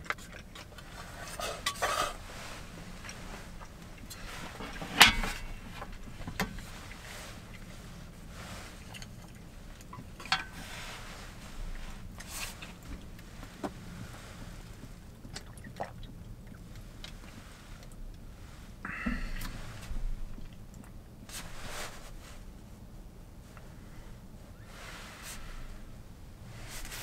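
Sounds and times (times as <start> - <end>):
steady low hum: 0.0 - 27.0
pot set down on tray: 4.6 - 5.5.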